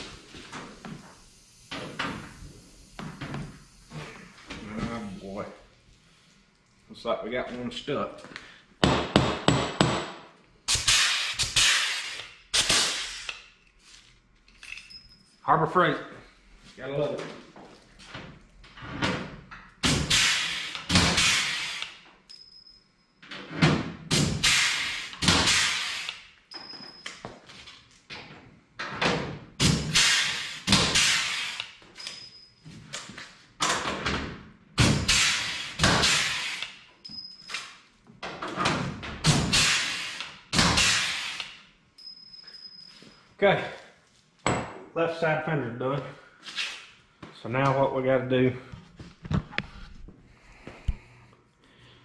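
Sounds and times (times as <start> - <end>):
air riveter hits with hiss: 0.9 - 4.0, 10.7 - 13.5, 19.8 - 22.0, 24.1 - 26.3, 29.6 - 31.8, 34.8 - 36.8, 39.3 - 41.6.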